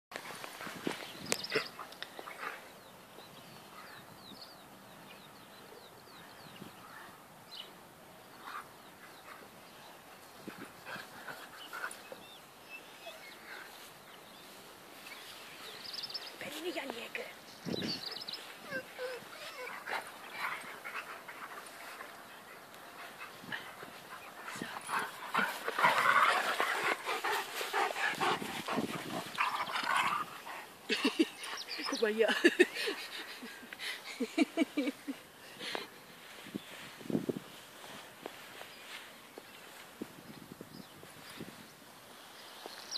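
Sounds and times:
dogs playing: 8.3s - 17.2s, 18.0s - 34.2s.

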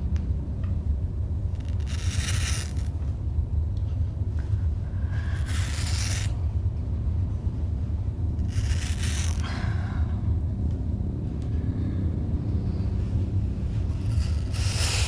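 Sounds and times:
steady low rumble: 0.0s - 15.0s
knife scraping through hair: 1.6s - 2.9s, 5.4s - 6.4s, 8.4s - 9.4s, 14.0s - 15.0s.

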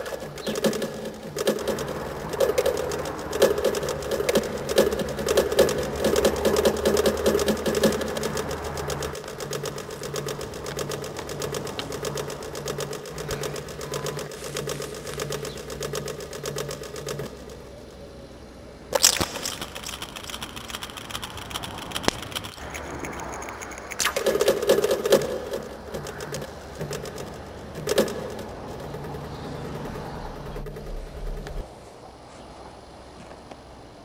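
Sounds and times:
fast stream of clicks: 0.0s - 18.1s, 18.9s - 31.7s
pulsing low note: 22.1s - 31.6s.

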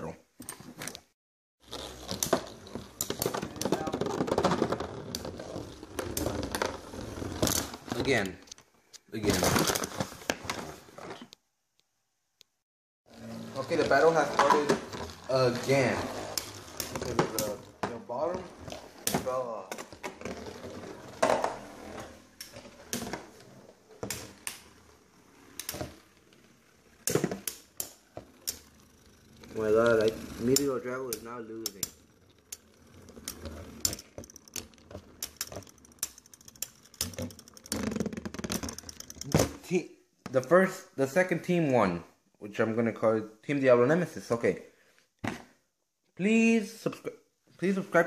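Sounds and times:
spinning tops clacking together: 27.0s - 39.4s
spinning tops clashing: 31.7s - 37.8s.

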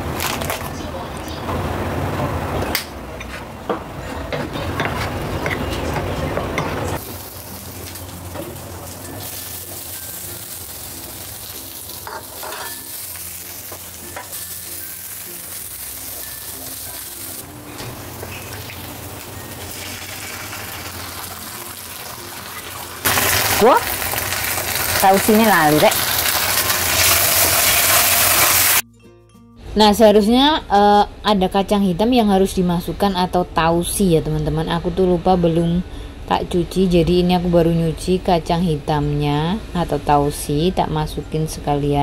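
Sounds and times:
garlic sizzling in hot oil: 7.0s - 28.8s
spatula scraping wok: 11.9s - 18.6s.

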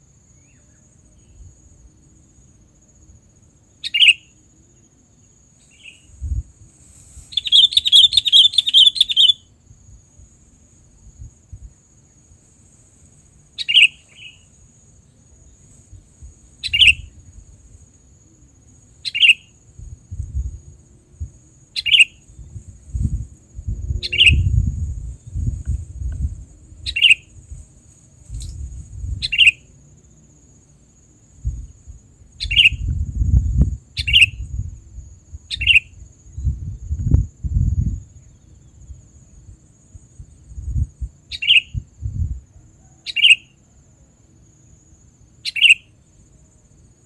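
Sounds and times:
high insect drone: 0.0s - 47.0s
low rumbling noise: 22.4s - 26.9s.

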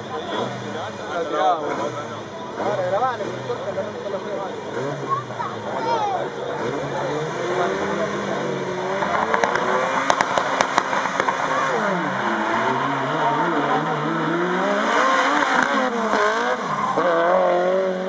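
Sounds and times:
car engines revving: 0.0s - 18.0s
sharp engine pops: 9.0s - 11.5s.

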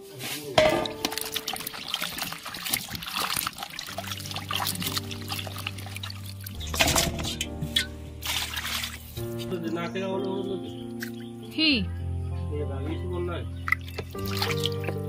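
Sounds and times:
soft background music: 0.0s - 15.0s
water splashing in basin: 0.6s - 10.4s, 13.6s - 15.0s.

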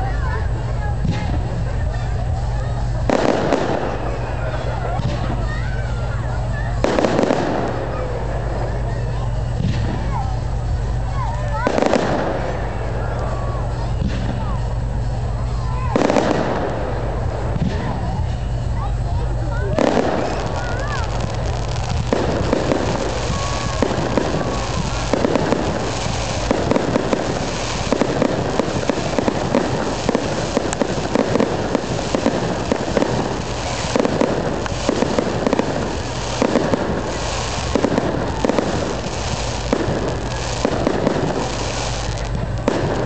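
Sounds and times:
fireworks bangs: 0.0s - 43.0s
fireworks crackling and popping: 0.0s - 43.0s
low rumble: 0.0s - 43.0s.

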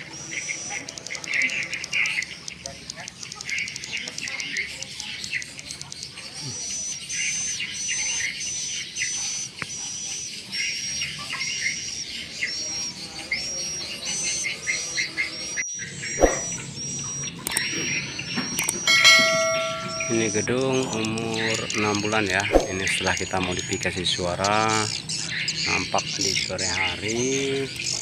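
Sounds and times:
bird calls from speakers: 0.0s - 28.0s
bell-like chime: 18.8s - 22.2s.

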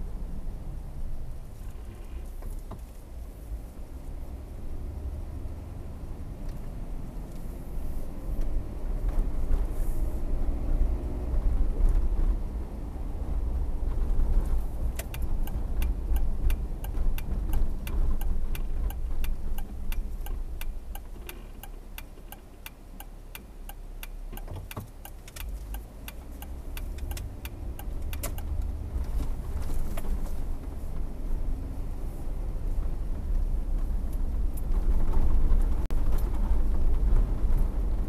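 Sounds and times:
car engine and road rumble: 0.0s - 38.0s
turn signal ticking: 14.5s - 30.9s.

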